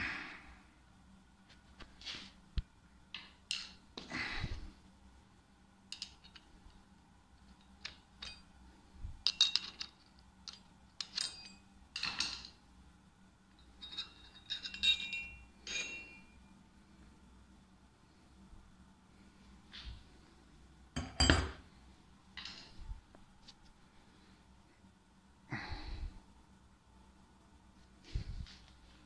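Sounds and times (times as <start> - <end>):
metal clinks and scrapes: 7.4 - 8.5, 9.2 - 12.6, 13.6 - 16.4.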